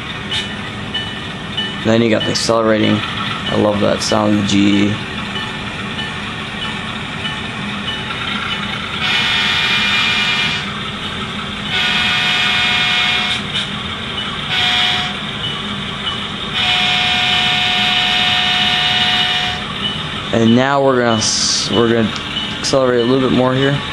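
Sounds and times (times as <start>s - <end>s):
diesel locomotive engine running: 0.0s - 23.9s
train horn blasts: 9.0s - 10.8s, 11.7s - 13.7s, 14.5s - 15.3s, 16.5s - 19.7s.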